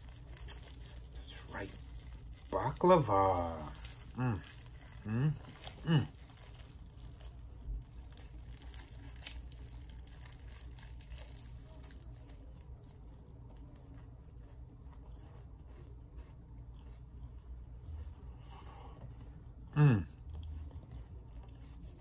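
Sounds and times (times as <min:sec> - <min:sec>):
plastic wrap crinkling: 0:00.0 - 0:13.3
pastry crunching and chewing: 0:00.0 - 0:22.0.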